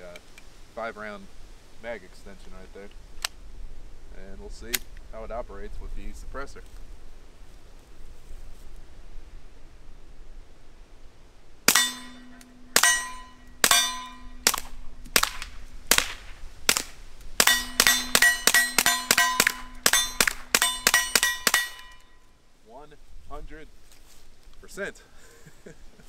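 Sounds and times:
metallic ringing: 11.7 - 15.9, 17.4 - 22.4
suppressed pistol shots: 11.7 - 22.1.

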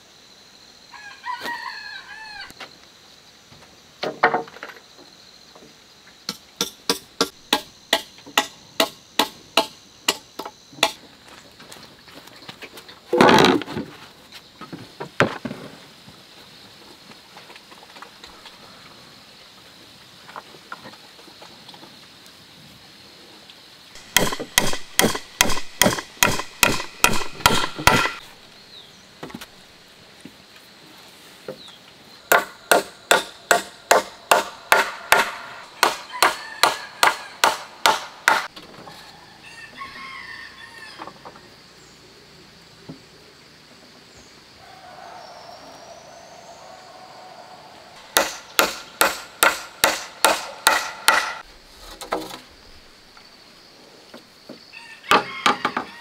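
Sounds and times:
hammer driving nails into wood: 24.0 - 28.2, 32.3 - 38.5, 48.1 - 51.4.

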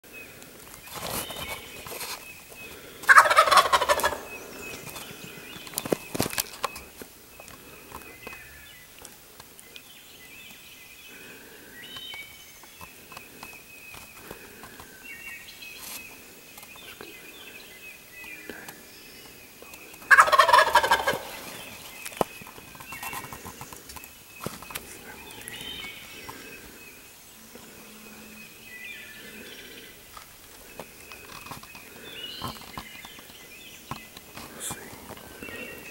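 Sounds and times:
songbirds chirping: 0.0 - 35.9
turkey gobbling: 3.1 - 4.3, 20.1 - 21.6.

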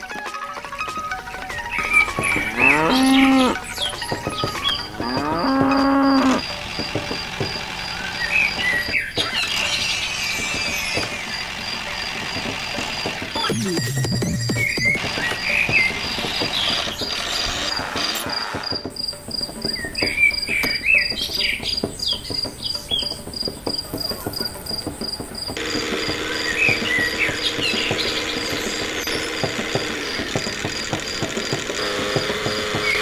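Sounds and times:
crickets chirping: 1.2 - 13.5, 14.2 - 33.0
bird chirps: 1.5 - 6.4, 7.5 - 11.8, 13.4 - 29.4.

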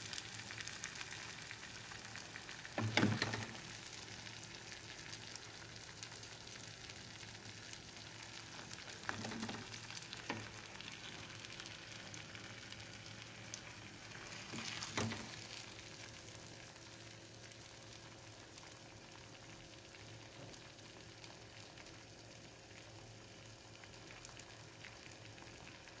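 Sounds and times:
food sizzling in a metal pot: 0.0 - 26.0.

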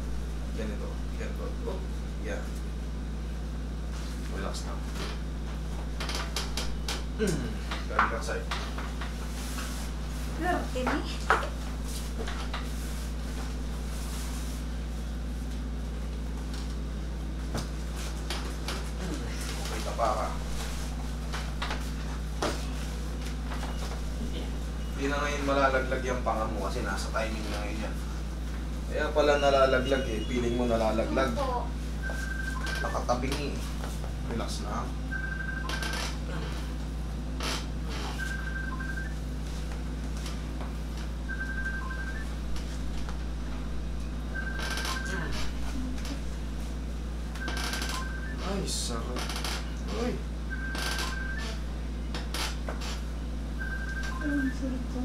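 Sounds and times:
steady low hum: 0.0 - 55.0
high electronic beeps: 29.2 - 30.7, 47.4 - 48.4, 50.5 - 51.6, 53.6 - 54.6.

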